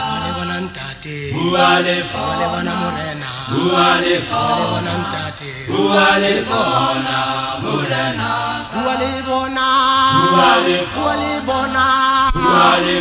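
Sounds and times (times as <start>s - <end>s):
male vocal group singing: 0.0s - 13.0s.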